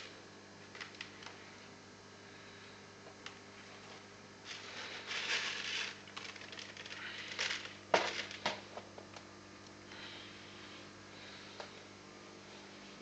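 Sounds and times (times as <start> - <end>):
steady low hum: 0.0 - 13.0
handling rustling and crackling: 3.6 - 9.0.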